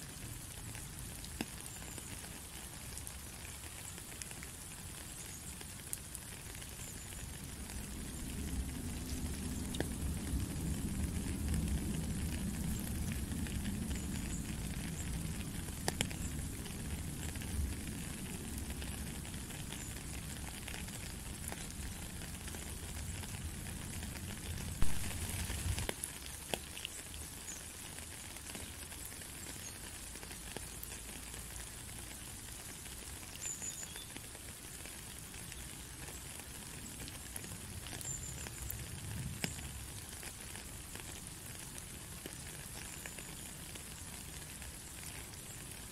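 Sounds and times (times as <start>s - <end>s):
steady rain patter: 0.0s - 45.9s
low rumble: 24.7s - 25.9s.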